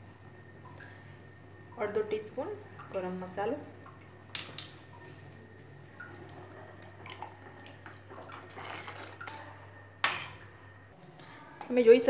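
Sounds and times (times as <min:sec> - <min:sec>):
spoon stirring boiling pot: 0:07.5 - 0:10.4.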